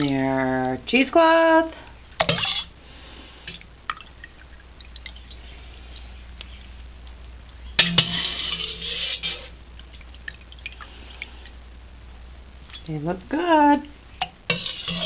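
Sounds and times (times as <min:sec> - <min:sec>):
whey dripping and splashing: 0:03.5 - 0:06.8, 0:08.0 - 0:11.6.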